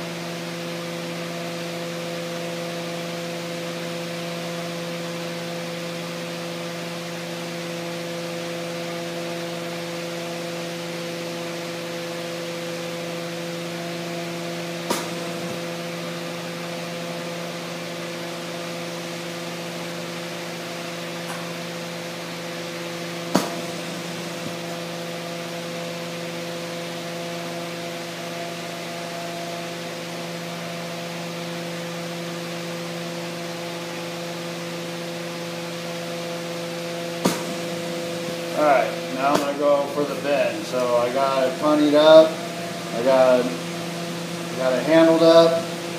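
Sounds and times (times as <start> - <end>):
low hum with overtones: 0.0 - 45.9
bench torch hissing: 35.8 - 45.9.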